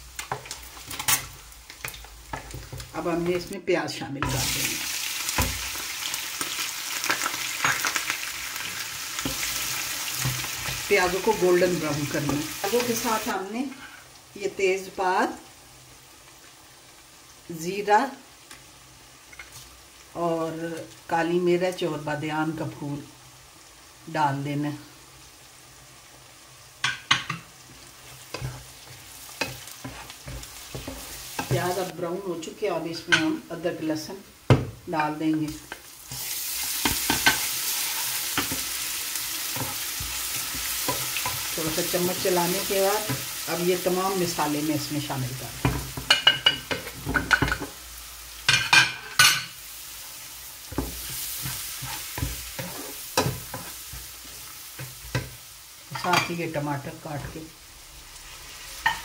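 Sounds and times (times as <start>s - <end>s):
onions sizzling in oil: 0.0s - 59.0s
spatula scraping pan: 26.9s - 31.9s, 50.6s - 56.4s.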